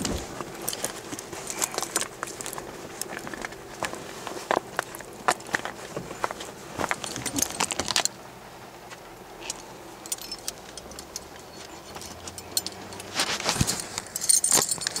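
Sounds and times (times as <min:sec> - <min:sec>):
phone handling clicks and rustles: 0:00.0 - 0:08.2.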